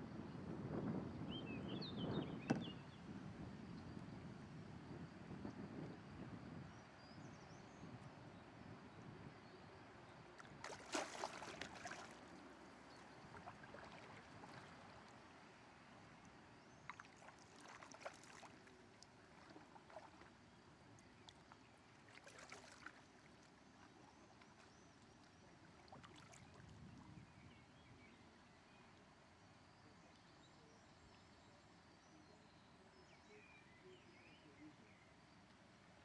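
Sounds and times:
moving water hiss: 10.4 - 21.0
canoe paddle splashing: 10.4 - 25.1, 25.7 - 26.6.

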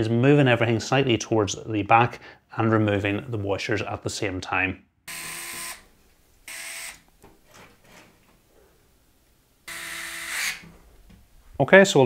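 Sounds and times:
electric screwdriver whirring: 5.1 - 5.8, 6.5 - 7.0, 9.7 - 10.6.

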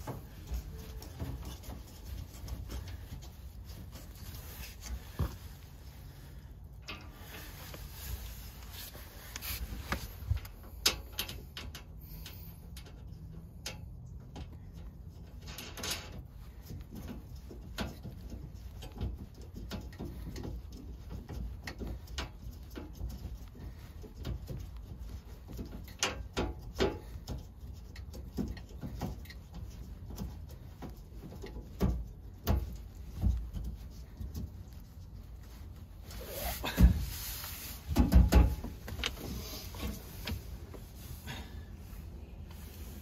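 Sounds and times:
metal hardware clicks and knocks: 10.3 - 34.8.

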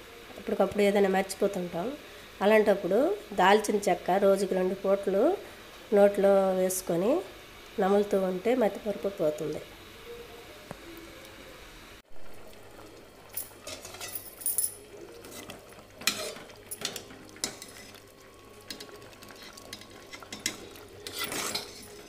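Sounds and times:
ladle clinking and scraping a pot: 13.4 - 18.0, 18.7 - 22.0.

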